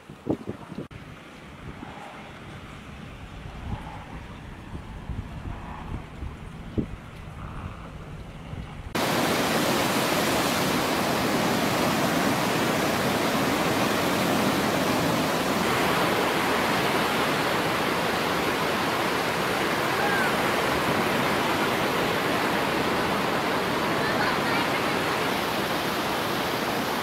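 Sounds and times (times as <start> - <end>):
heavy surf breaking on beach: 8.9 - 27.0.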